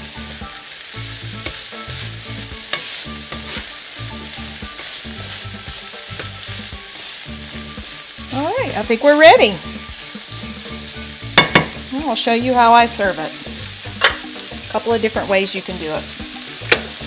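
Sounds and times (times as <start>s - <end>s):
vegetables sizzling in a frying pan: 0.0s - 17.0s
utensil clicking against pan: 14.0s - 14.5s, 16.6s - 17.0s.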